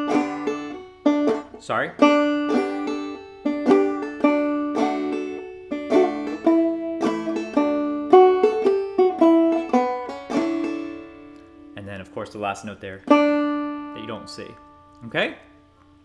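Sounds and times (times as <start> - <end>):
banjo melody: 0.0 - 15.8.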